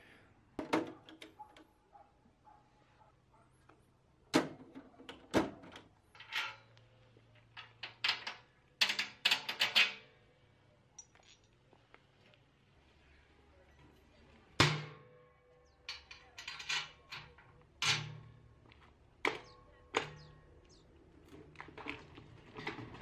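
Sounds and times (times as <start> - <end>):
metal cart clanking and rattling: 15.9 - 18.4, 21.5 - 23.0.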